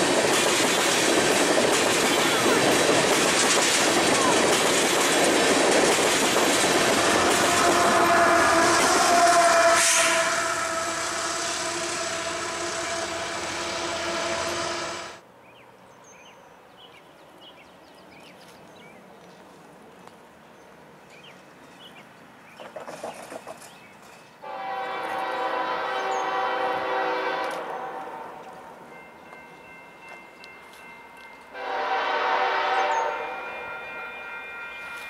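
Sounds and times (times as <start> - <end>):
passing train rushing: 0.0 - 15.4, 18.9 - 35.0
distant train horn: 6.8 - 15.2, 24.4 - 29.8, 31.5 - 35.0
locomotive horn blowing: 7.0 - 15.2, 24.4 - 28.6, 31.5 - 35.0.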